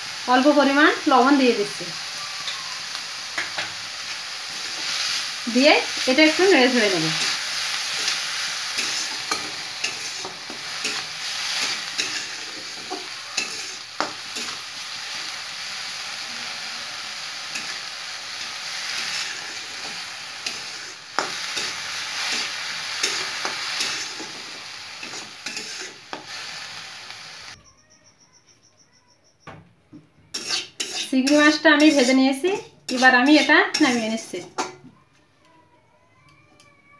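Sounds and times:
shrimp sizzling in hot oil: 0.0s - 27.6s, 30.4s - 34.6s
metal spoon scraping a pan: 4.6s - 15.2s, 18.7s - 24.4s, 25.0s - 26.2s, 30.3s - 34.7s.

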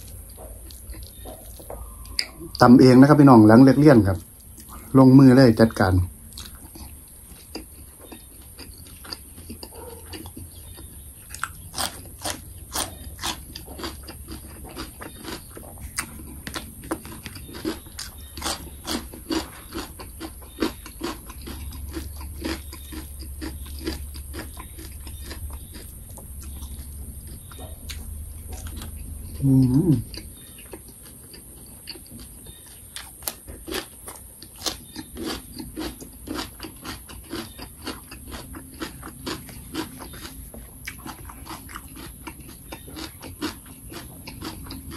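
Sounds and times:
wet chewing and lip-smacking: 0.0s - 44.9s
loud voiced sound: 29.4s - 30.1s.

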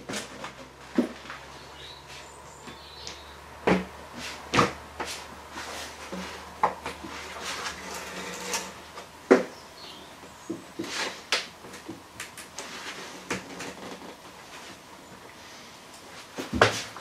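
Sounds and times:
scraping and rustling: 3.7s - 9.5s, 10.4s - 17.0s.

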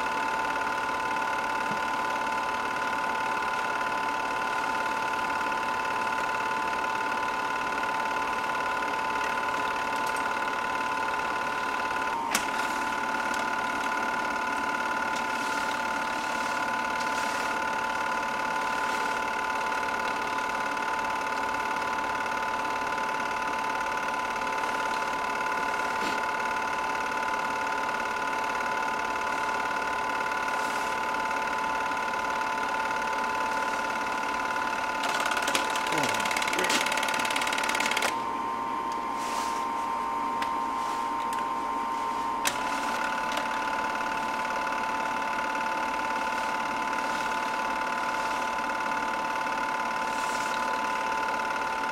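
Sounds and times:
film projector whirring: 0.0s - 51.9s.

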